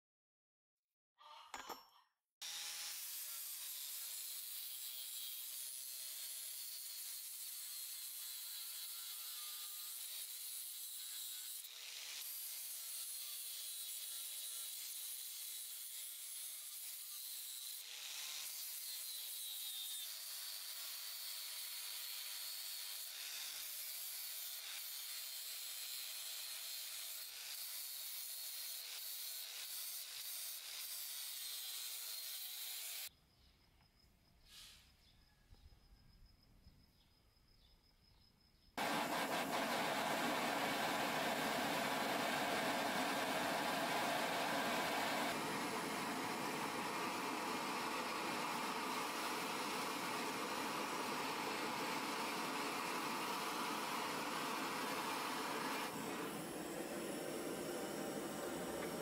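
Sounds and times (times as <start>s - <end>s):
angle grinder grinding steel: 2.4s - 33.1s, 38.8s - 59.0s.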